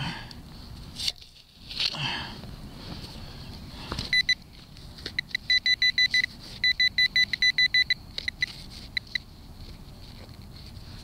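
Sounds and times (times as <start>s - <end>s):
short high beeps: 5.2s - 9.2s.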